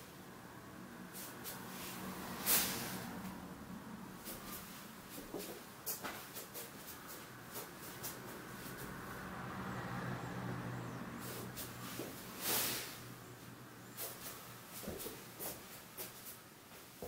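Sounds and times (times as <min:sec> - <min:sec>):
bare feet tapping on foam mats: 0:05.1 - 0:08.9, 0:14.0 - 0:16.3.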